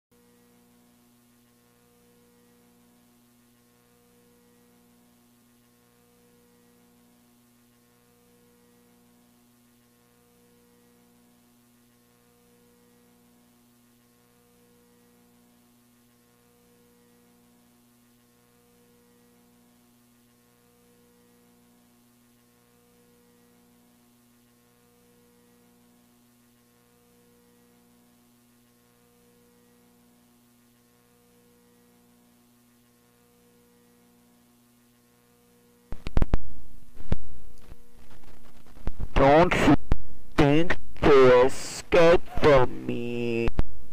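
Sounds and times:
low hum: 35.9 - 43.9.

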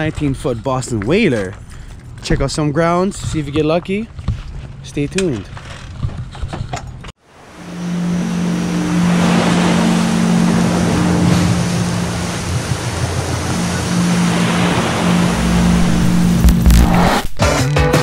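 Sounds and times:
ocean surf on beach: 7.2 - 17.1
steady low drone: 7.4 - 17.4.

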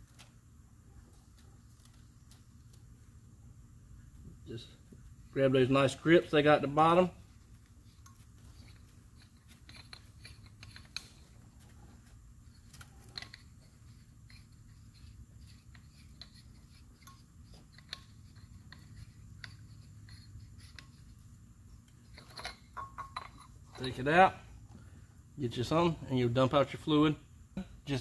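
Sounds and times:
low steady hum: 0.0 - 28.0
small clicks and scrapes: 7.3 - 24.0.

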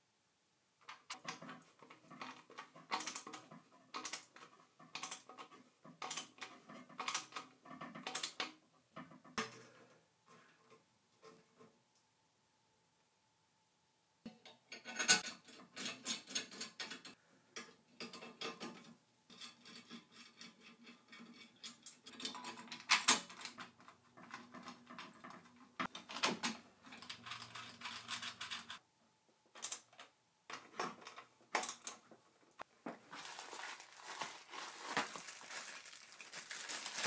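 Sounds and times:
tools clicking and rattling: 0.9 - 8.6, 21.2 - 28.8.

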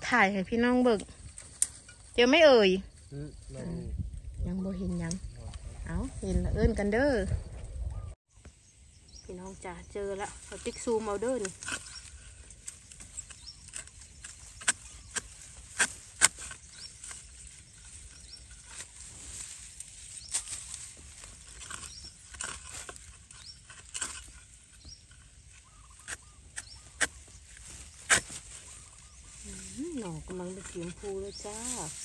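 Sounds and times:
blade chopping into soil: 12.9 - 17.2, 26.0 - 28.5.

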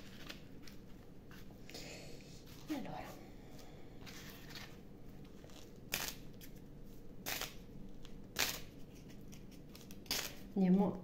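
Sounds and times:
faint room hum: 0.0 - 11.0
person breathing softly: 1.6 - 2.5, 3.1 - 4.2.

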